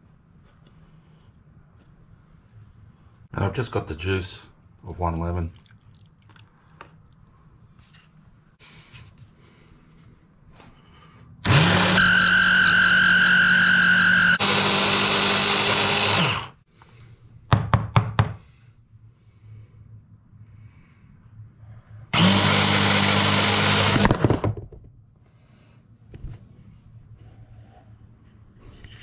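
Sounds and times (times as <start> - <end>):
food chopper motor whining: 11.4 - 16.6, 22.1 - 24.4.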